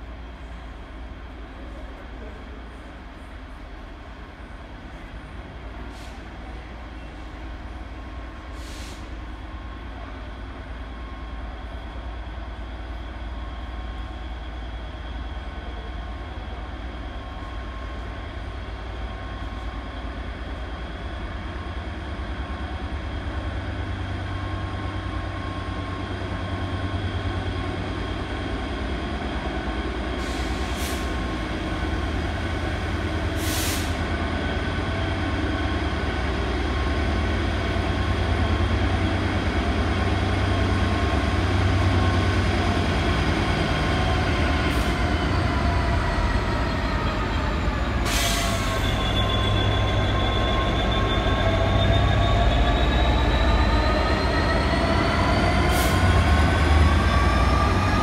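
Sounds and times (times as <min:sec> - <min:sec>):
diesel locomotive engine rumbling: 0:00.0 - 0:58.0
brief hisses: 0:08.5 - 0:09.2, 0:33.4 - 0:34.0.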